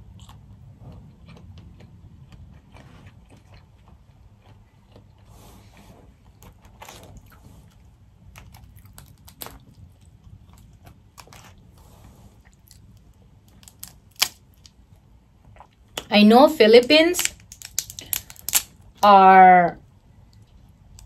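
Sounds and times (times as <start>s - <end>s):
person chewing: 0.0s - 11.7s, 15.4s - 16.1s
crawfish shells cracking: 8.3s - 9.8s, 12.9s - 14.8s, 17.1s - 19.0s.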